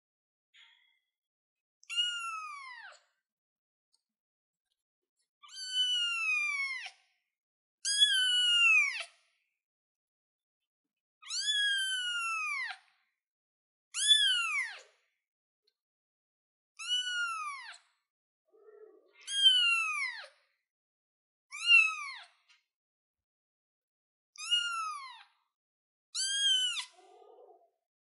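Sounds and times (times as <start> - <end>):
kitten meowing: 1.9 - 3.0, 5.5 - 6.9, 11.2 - 12.7, 16.8 - 17.7, 18.6 - 20.3, 21.5 - 22.2, 24.4 - 25.2, 26.2 - 27.6.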